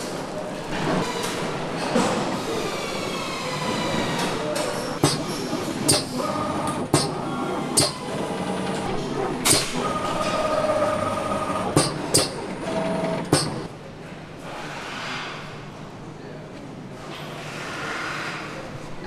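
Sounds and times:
machinery running hum: 0.0s - 14.1s
machinery clicks and clacks: 4.1s - 13.7s.

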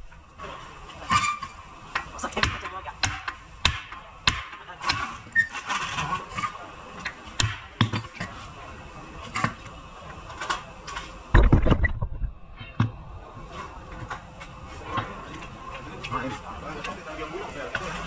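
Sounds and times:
heavy low thump: 11.4s - 12.9s.

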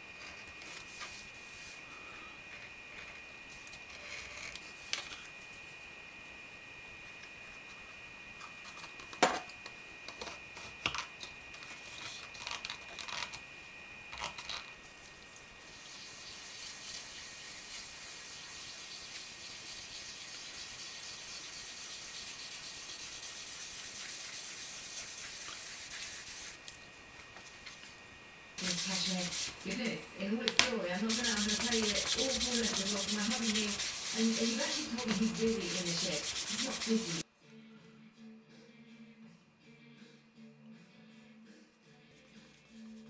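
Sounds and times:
faint high whine: 0.0s - 38.1s
dauber rubbing over leather: 28.6s - 29.6s, 30.9s - 37.2s.

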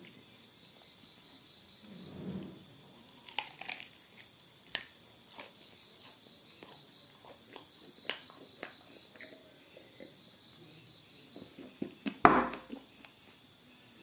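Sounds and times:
crunchy chewing: 2.7s - 13.3s.

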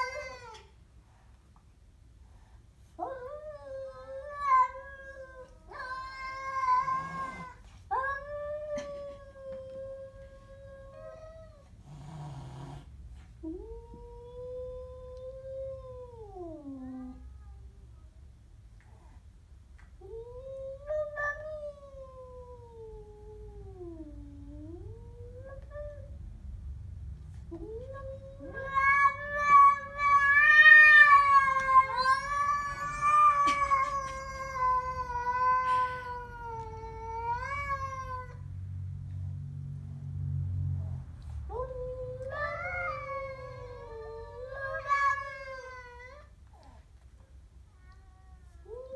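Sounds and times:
cat yowling: 0.0s - 0.7s, 27.6s - 38.4s, 41.5s - 46.3s
cat hissing growl: 4.3s - 7.6s, 11.8s - 13.0s.

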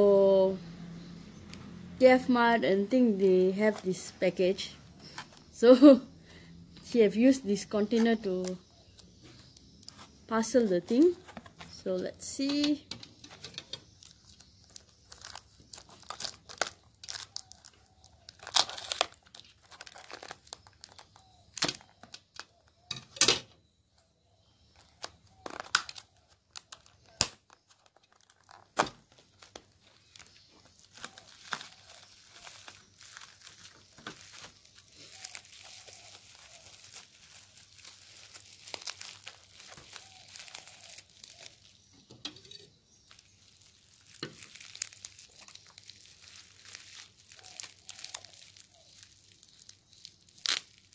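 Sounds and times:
bubble wrap crinkling: 2.0s - 22.9s, 24.6s - 50.9s
scissors cutting plastic: 10.9s - 22.9s, 24.8s - 29.7s
plastic snapping and crackling: 12.4s - 23.5s, 24.8s - 50.9s.

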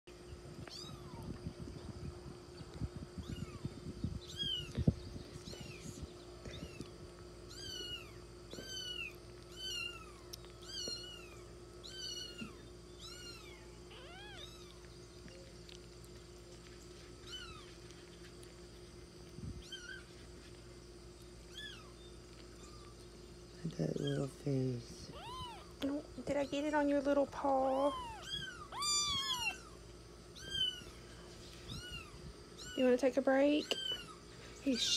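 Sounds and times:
kitten mewing: 25.0s - 25.9s, 27.7s - 29.8s.

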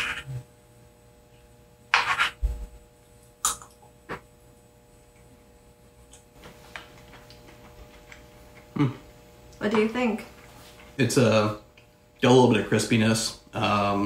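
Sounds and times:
spoon scraping a bowl: 0.0s - 0.4s, 1.9s - 2.5s.

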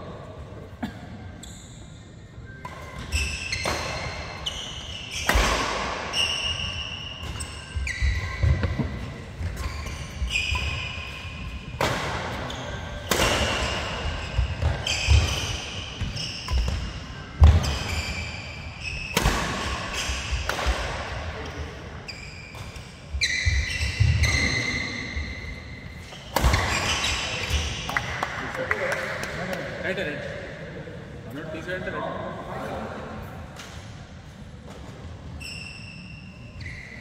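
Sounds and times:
shoes squeaking on court: 2.5s - 20.8s, 21.4s - 27.9s, 34.7s - 37.0s
rackets striking shuttlecock: 11.8s - 14.0s.

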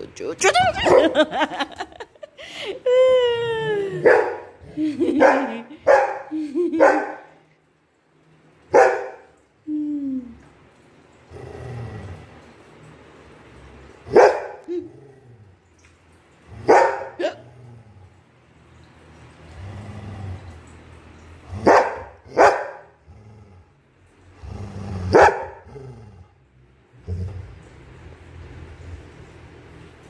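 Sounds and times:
dog barking: 0.8s - 1.3s, 4.0s - 7.3s, 8.7s - 9.3s, 14.1s - 14.7s, 16.7s - 17.2s, 21.6s - 22.9s, 25.1s - 25.6s
dog growling: 11.2s - 12.6s, 14.6s - 15.7s, 16.5s - 18.3s, 19.4s - 20.8s, 21.4s - 28.1s.

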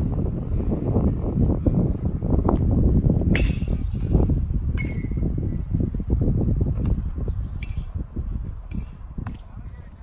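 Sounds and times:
wind on microphone: 0.0s - 10.0s
baseball hitting bat or glove: 3.3s - 3.8s.

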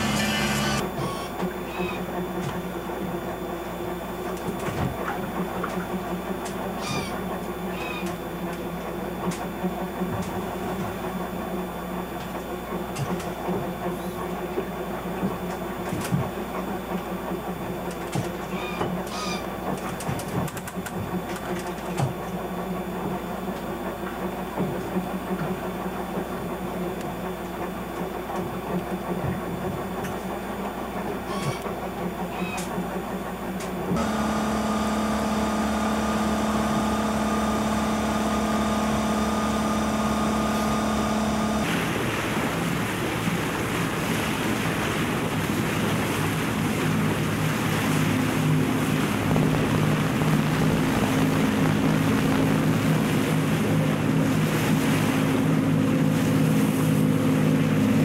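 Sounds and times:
boat engines droning: 0.0s - 58.0s
brief high squeaks: 31.3s - 31.6s.

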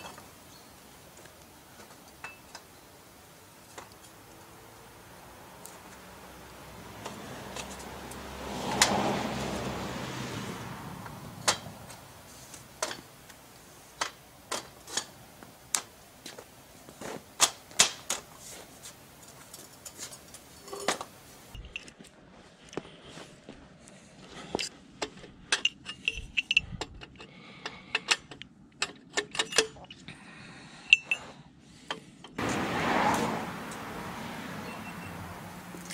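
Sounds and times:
sharp metallic clanks and knocks: 11.4s - 13.4s, 27.9s - 30.0s
metal tubing scraping on paving: 14.0s - 15.2s.

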